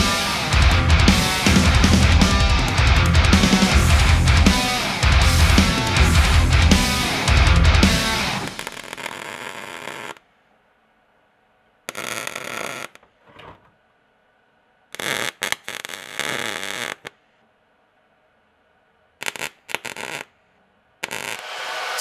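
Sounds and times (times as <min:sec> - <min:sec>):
welder arc crackling: 0:00.0 - 0:10.2, 0:15.0 - 0:17.1, 0:19.2 - 0:20.3, 0:21.0 - 0:22.0.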